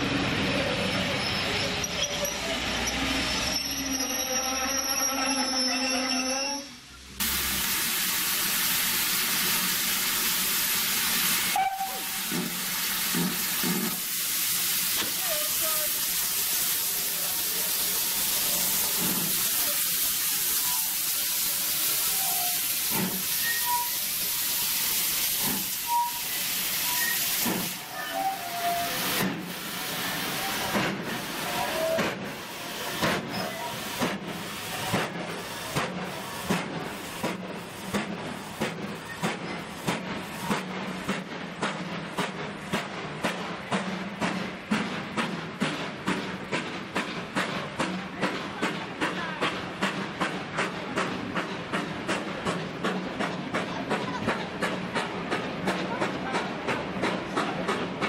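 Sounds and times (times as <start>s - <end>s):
steam locomotive hissing: 0.2s - 58.0s.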